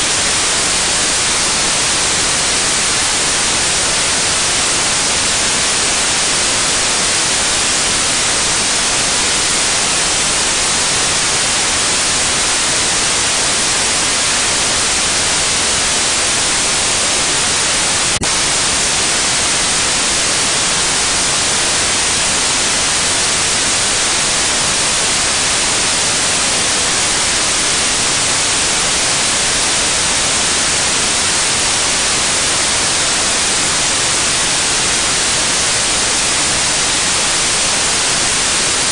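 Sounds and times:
static hiss: 0.0s - 38.9s.

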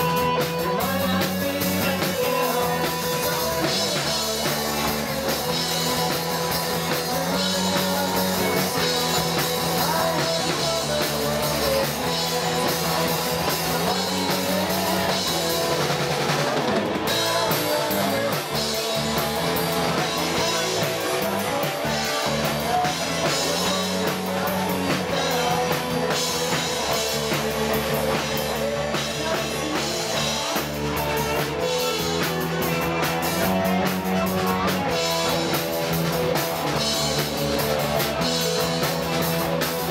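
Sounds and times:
bass guitar: 0.0s - 39.9s
drum kit: 0.0s - 39.9s
electric guitars: 0.0s - 39.9s.

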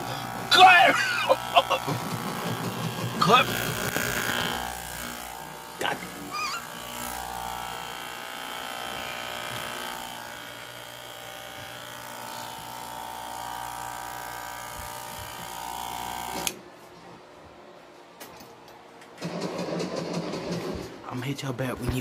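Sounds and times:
electric hair clippers buzzing: 0.0s - 16.6s.

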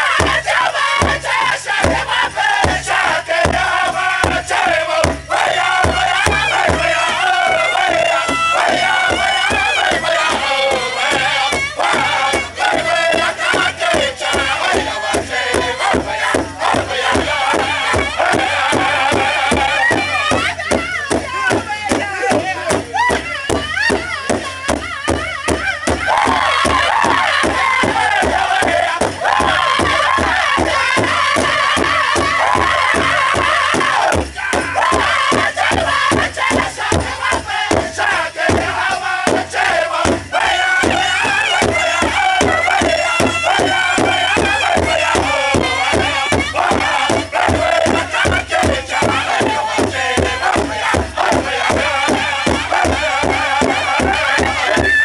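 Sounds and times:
group singing in high voices: 0.0s - 55.0s
large drum steady beat: 0.0s - 55.0s.

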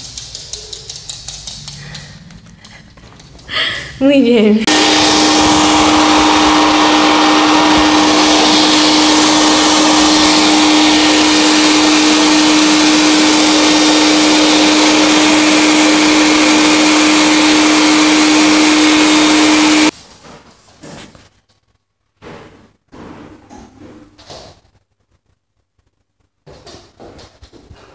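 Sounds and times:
electric blower motor running: 4.6s - 19.9s.

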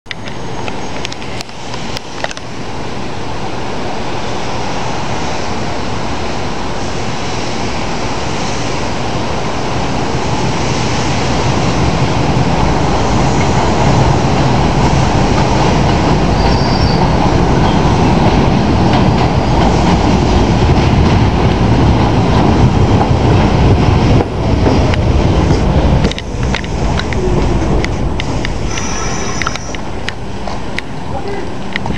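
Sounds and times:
subway train rumble: 0.1s - 31.9s
train wheel squeal: 16.3s - 18.0s, 28.4s - 30.0s.

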